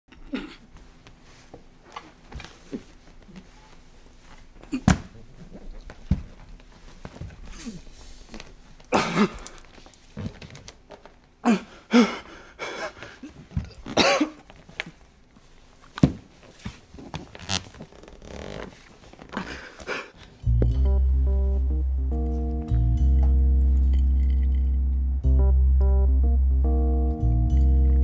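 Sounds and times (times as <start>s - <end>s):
low steady music chord: 20.4s - 28.0s.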